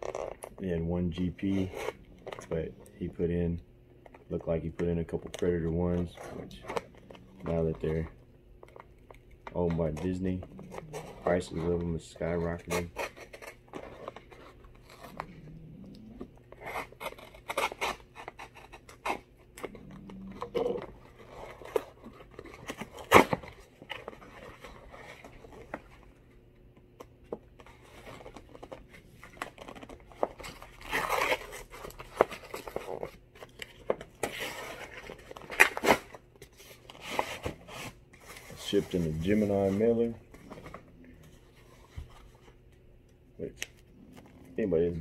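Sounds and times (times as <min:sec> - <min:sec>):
paper rustling and tearing: 0:16.5 - 0:26.0, 0:27.6 - 0:42.4.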